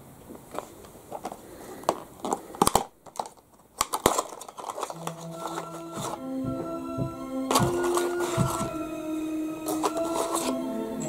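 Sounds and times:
cardboard box being opened: 3.9s - 6.2s
faint background music: 4.0s - 11.0s.

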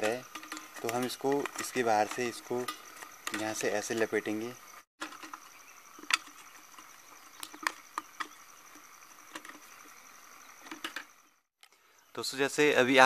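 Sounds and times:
wire scraping against a can: 0.0s - 4.0s.

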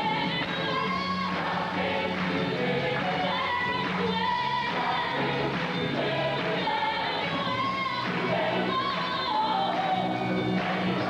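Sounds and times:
large choir singing: 0.6s - 11.0s.

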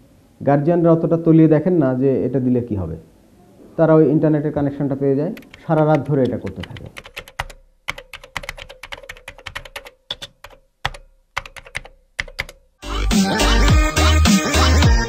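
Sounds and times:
computer keyboard typing: 5.3s - 12.7s
music with heavy beat: 12.8s - 15.0s.

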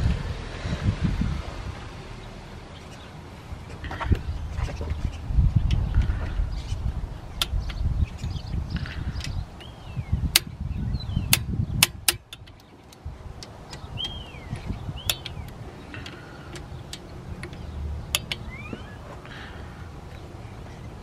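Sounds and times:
socket ratchet clicking: 10.3s - 10.5s, 11.3s - 18.7s.

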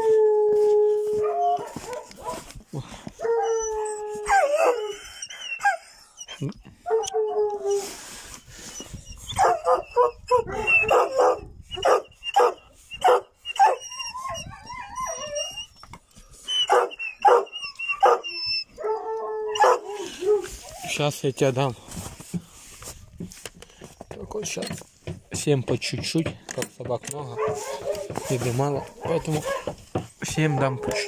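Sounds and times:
hounds howling: 0.0s - 2.5s, 3.2s - 5.9s, 9.3s - 15.8s, 16.6s - 21.2s, 27.3s - 31.0s
dogs whining: 1.0s - 2.5s, 3.2s - 21.6s, 27.3s - 31.0s
dogs barking sharply: 1.6s - 2.5s, 9.4s - 13.8s, 16.6s - 18.2s, 19.6s - 19.9s, 27.3s - 31.0s.

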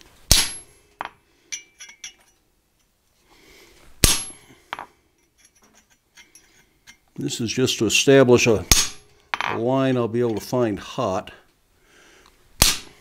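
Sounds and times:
light metal clinks: 1.5s - 2.9s, 4.7s - 7.1s.

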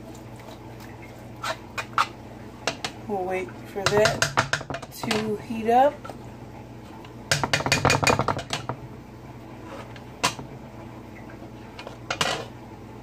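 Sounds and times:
spoon knocking on frying pan: 3.8s - 5.3s, 7.3s - 8.8s.

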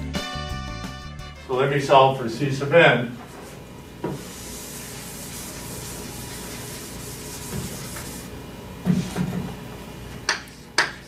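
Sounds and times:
eraser rubbing on blackboard: 4.1s - 8.3s.

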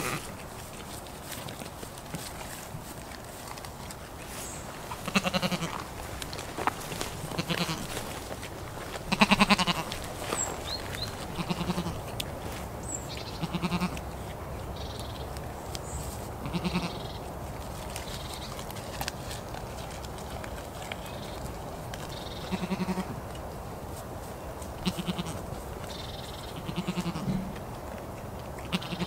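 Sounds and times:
goat bleating: 0.0s - 0.4s, 5.0s - 5.8s, 7.3s - 8.1s, 9.1s - 10.1s, 11.2s - 12.1s, 13.3s - 14.1s, 16.4s - 17.2s, 22.4s - 23.2s, 24.8s - 25.5s, 26.4s - 27.6s, 28.7s - 29.0s.

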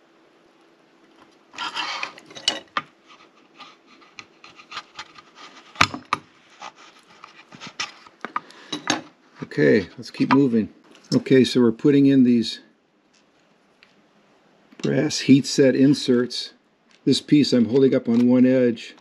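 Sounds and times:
chisel scraping plastic: 1.6s - 8.4s.

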